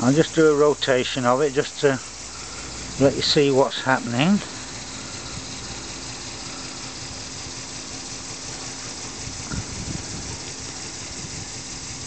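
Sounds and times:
model steam engine hissing: 0:00.0 - 0:12.0.

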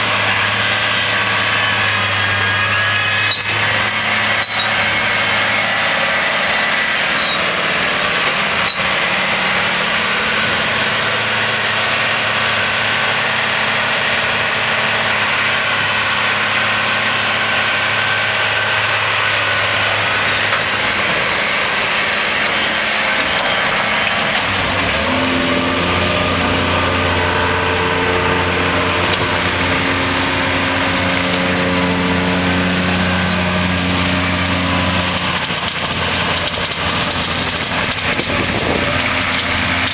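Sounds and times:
tractor engine under load: 0:00.0 - 0:39.9
forage harvester chopping rush: 0:12.5 - 0:39.9.

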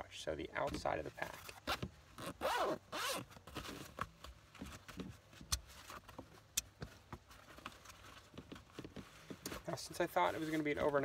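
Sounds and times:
rummaging through backpack pouch: 0:01.2 - 0:05.2.

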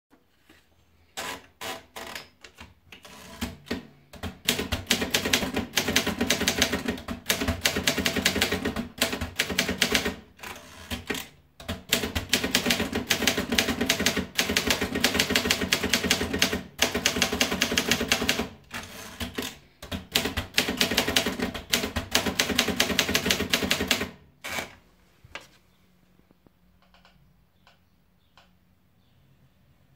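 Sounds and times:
typewriter keys typing: 0:03.0 - 0:24.8.

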